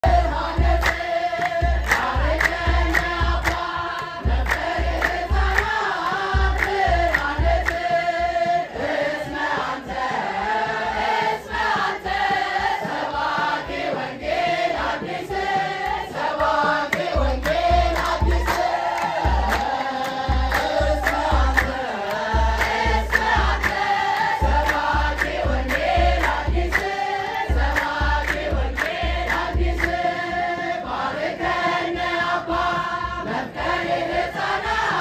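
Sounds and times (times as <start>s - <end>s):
deep drum beat: 0.0s - 8.6s, 14.4s - 30.5s
group of voices singing: 0.0s - 35.0s
sharp rhythmic strikes: 0.0s - 35.0s.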